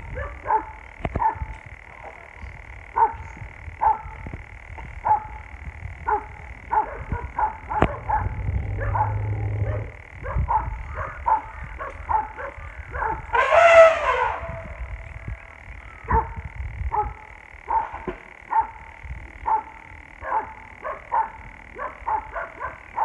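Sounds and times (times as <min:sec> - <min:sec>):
dogs barking: 0:00.1 - 0:01.5, 0:02.9 - 0:03.2, 0:03.8 - 0:04.1, 0:05.0 - 0:13.3, 0:16.0 - 0:23.0
drawn-out dog call: 0:06.1 - 0:14.4.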